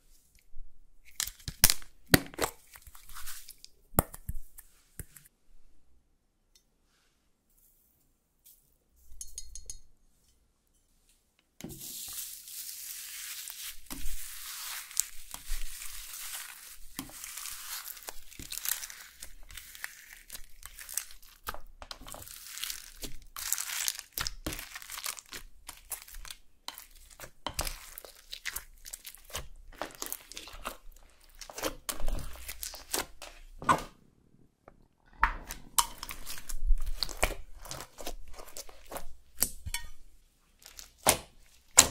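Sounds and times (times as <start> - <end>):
slime crinkling and squelching: 1.0 - 5.3, 11.8 - 34.0, 35.0 - 41.9.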